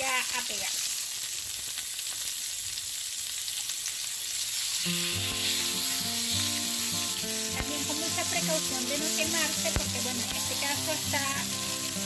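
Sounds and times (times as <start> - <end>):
fish sizzling in oil: 0.0 - 12.0
background music with held notes: 4.8 - 12.0.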